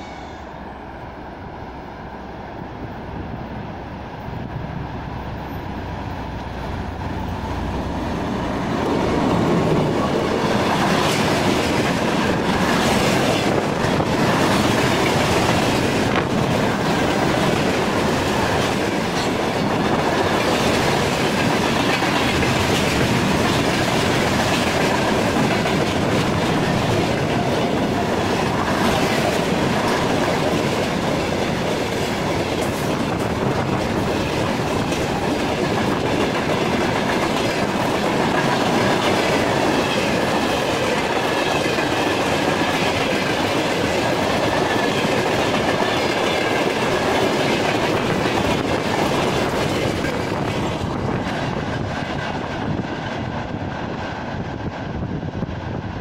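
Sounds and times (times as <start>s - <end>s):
freight train rumbling past: 0.0s - 56.0s
wheels clattering on rails: 8.2s - 53.6s.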